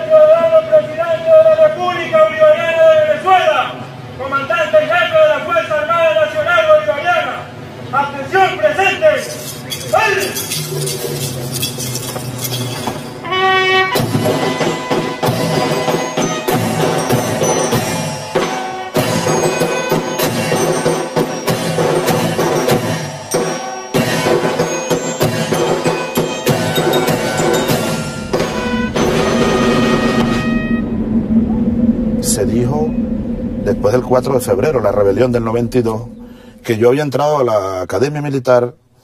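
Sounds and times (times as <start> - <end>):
drums beating steadily: 14.0 - 30.7
chiming bells melody: 14.2 - 30.6.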